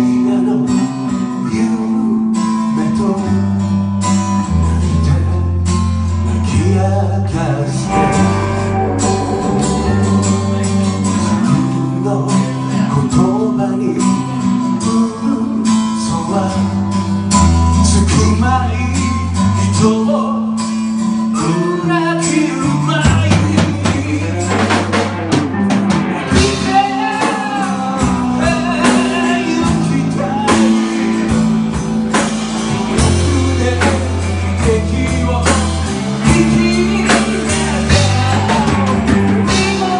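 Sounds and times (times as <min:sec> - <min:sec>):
man singing: 0:00.0 - 0:03.6, 0:06.3 - 0:25.0, 0:25.6 - 0:31.9, 0:32.7 - 0:39.9
strummed acoustic guitar: 0:00.0 - 0:39.9
electric bass: 0:01.7 - 0:39.9
drum kit: 0:07.8 - 0:12.6, 0:22.2 - 0:39.9.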